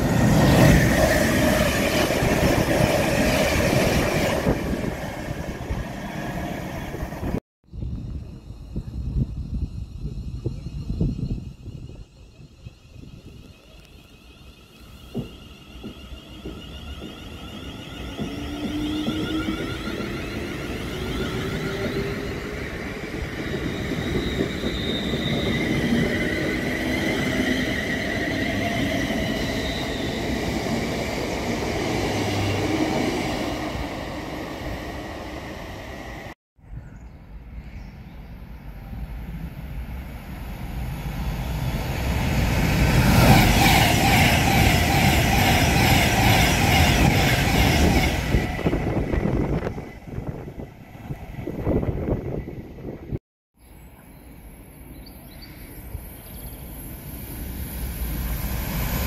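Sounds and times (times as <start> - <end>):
train passing at speed: 0.0 - 36.4, 37.3 - 59.0
wheel and rail noise: 8.0 - 36.4
train traction motors whining: 10.4 - 30.4.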